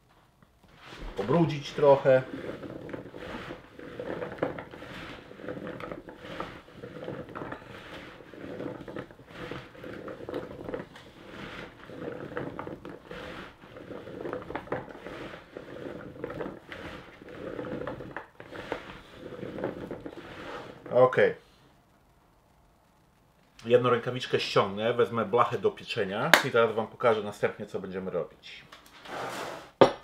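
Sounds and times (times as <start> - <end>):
potatoes squelching in plastic bowl: 0.8 - 21.1.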